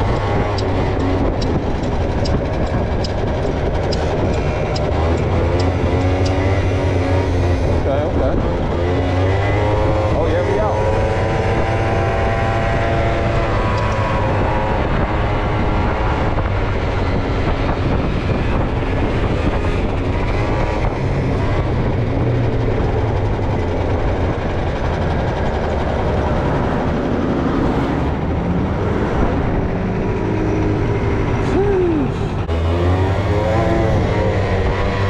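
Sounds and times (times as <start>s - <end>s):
wind rushing over microphone: 0.0s - 35.0s
scooter engine running: 15.8s - 27.5s.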